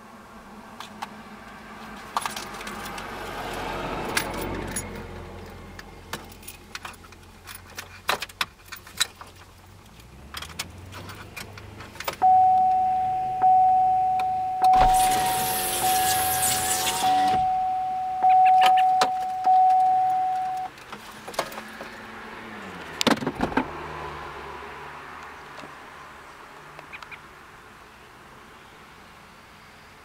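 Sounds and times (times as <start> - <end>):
light clicks and rattles: 4.1 - 12.2
single-pitched chime: 12.2 - 20.7
loud rushing noise: 14.7 - 17.6.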